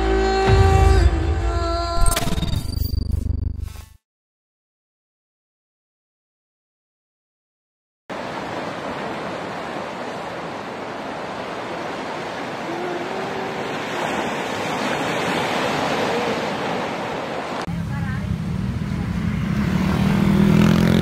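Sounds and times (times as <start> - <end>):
sea surf washing over rocks: 8.1 - 17.7.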